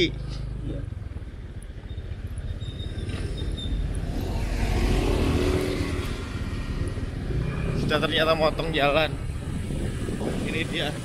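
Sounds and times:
motorcycle engine and road noise: 0:00.0 - 0:11.0
wind buffeting microphone: 0:03.8 - 0:11.0.

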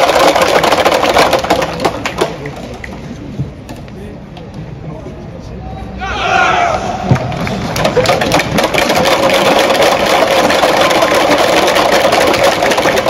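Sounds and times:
crowd clapping: 0:00.0 - 0:03.0, 0:07.2 - 0:13.0
crowd shouting: 0:06.0 - 0:07.4.

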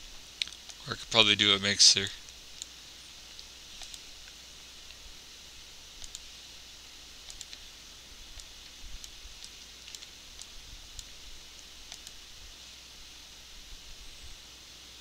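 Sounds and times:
faint hiss: 0:00.0 - 0:15.0
computer mouse clicking: 0:00.4 - 0:00.8, 0:02.2 - 0:02.7, 0:03.3 - 0:05.0, 0:06.0 - 0:06.3, 0:07.2 - 0:07.6, 0:08.3 - 0:12.2.

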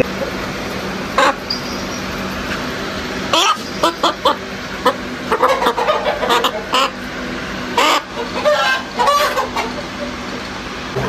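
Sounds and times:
chickens clucking and squawking: 0:01.1 - 0:02.0, 0:03.2 - 0:10.5.

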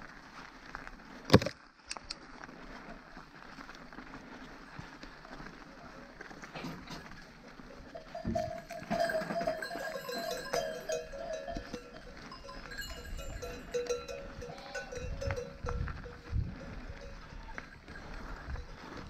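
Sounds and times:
livestock bells clanking: 0:06.7 - 0:19.0.

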